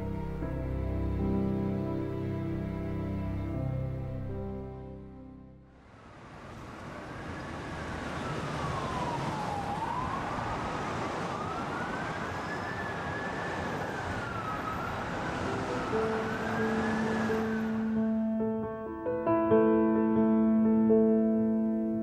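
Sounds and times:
soft music notes: 0:00.0 - 0:05.7
city traffic hiss: 0:05.7 - 0:18.3
emergency siren wailing: 0:06.5 - 0:18.2.

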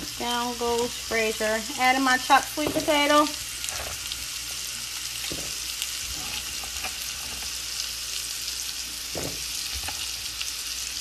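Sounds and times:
sweet potato sizzling in oil: 0:00.0 - 0:11.0.

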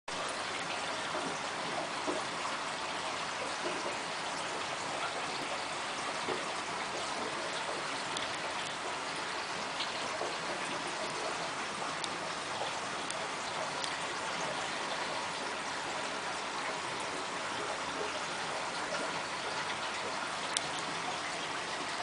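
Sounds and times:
aquarium water trickling: 0:00.1 - 0:22.0
water droplet ticks: 0:08.1 - 0:08.8, 0:12.0 - 0:12.2, 0:13.0 - 0:13.2, 0:20.5 - 0:20.8.

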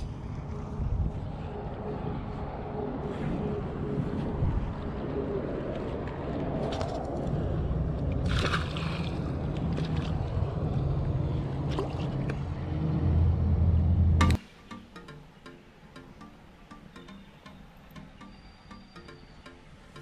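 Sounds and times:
wind rumbling on microphone: 0:00.0 - 0:14.4
fish splashing into water: 0:08.1 - 0:10.2.

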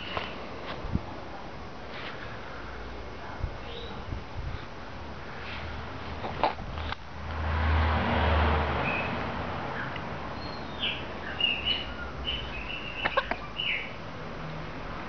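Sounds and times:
broad rushing noise with hum: 0:00.0 - 0:10.4
birds chirping: 0:03.6 - 0:04.2, 0:08.8 - 0:14.0.

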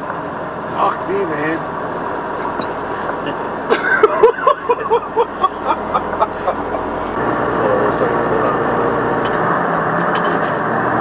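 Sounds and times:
road and engine noise in vehicle: 0:00.0 - 0:11.0
person laughing: 0:03.7 - 0:07.1.

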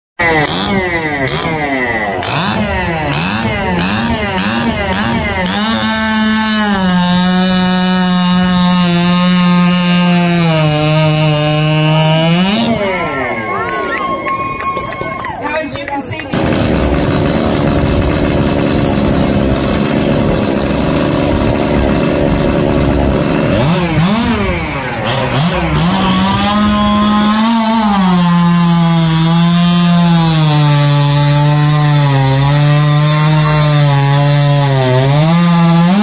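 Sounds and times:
chainsaw cutting log: 0:00.2 - 0:13.6, 0:15.8 - 0:36.0
chainsaw revving: 0:00.2 - 0:13.6, 0:16.1 - 0:36.0.

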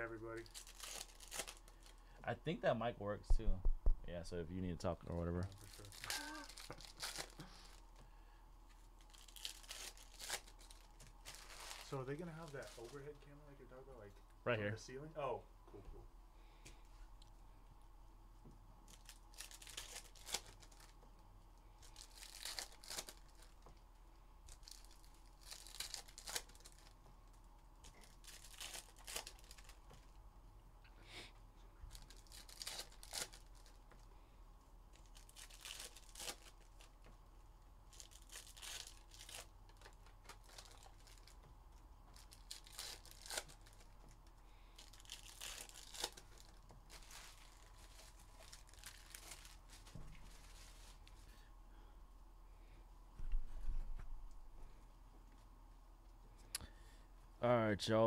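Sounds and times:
foil wrappers tearing and crinkling: 0:00.0 - 0:02.0, 0:05.3 - 0:07.8, 0:09.0 - 0:13.2, 0:18.8 - 0:21.0, 0:21.8 - 0:23.8, 0:24.5 - 0:30.0, 0:31.8 - 0:34.0, 0:34.9 - 0:37.0, 0:37.8 - 0:41.5, 0:42.1 - 0:51.1.

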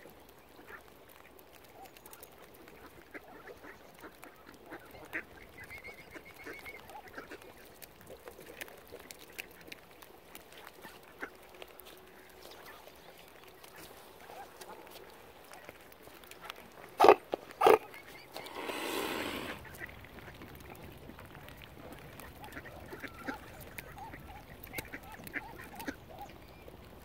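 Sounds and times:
ducks quacking: 0:17.0 - 0:19.8.

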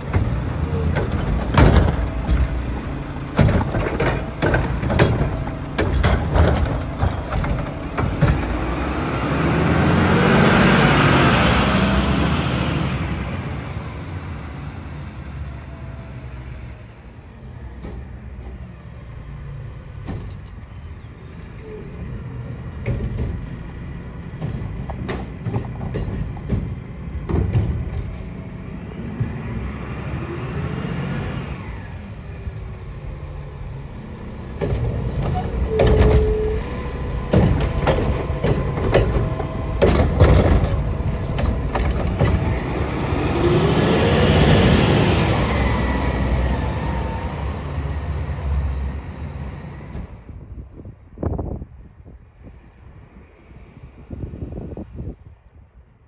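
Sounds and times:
metal knocks and clanks: 0:00.0 - 0:08.8, 0:24.3 - 0:28.4, 0:34.6 - 0:42.8
garbage truck engine: 0:00.0 - 0:50.7.

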